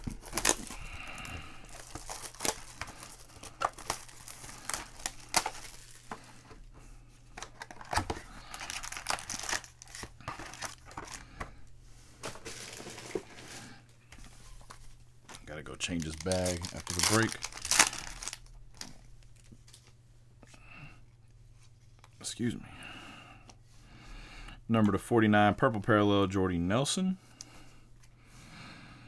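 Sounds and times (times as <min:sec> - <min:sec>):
plastic wrapping tearing: 0:00.0 - 0:06.1, 0:07.4 - 0:11.2, 0:15.8 - 0:19.9
foil packs crinkling: 0:00.0 - 0:06.7, 0:07.3 - 0:11.4, 0:12.2 - 0:13.8, 0:14.6 - 0:20.0.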